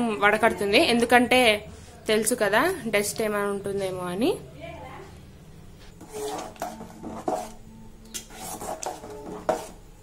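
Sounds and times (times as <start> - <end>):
steel spoon scraping a pot: 5.9 - 9.9.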